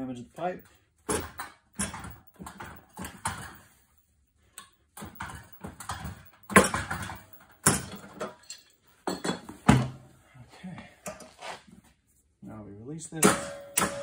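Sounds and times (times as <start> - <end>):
metal pipe fittings clanking: 4.5 - 9.5.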